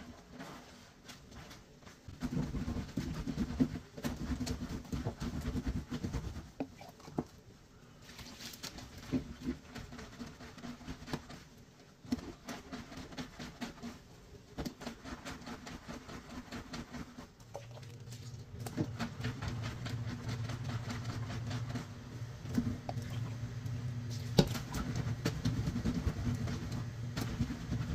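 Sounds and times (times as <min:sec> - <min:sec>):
clothes scrubbed on washboard: 0:00.0 - 0:07.1, 0:08.0 - 0:27.9
steady low hum: 0:13.5 - 0:27.9.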